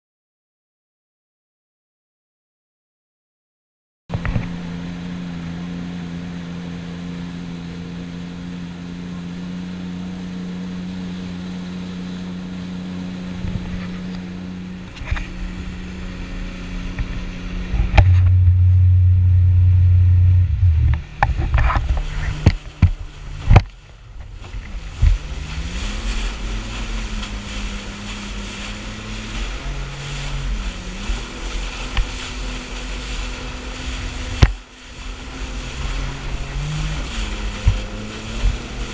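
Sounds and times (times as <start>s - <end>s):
watercraft engine drone: 4.1s - 38.9s
low rumble: 13.2s - 38.9s
wind rush: 13.3s - 38.9s
water spray: 24.2s - 38.9s.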